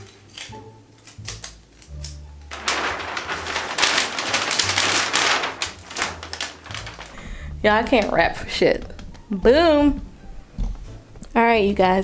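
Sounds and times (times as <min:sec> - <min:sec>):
wrapping paper crinkling: 0:00.0 - 0:08.3.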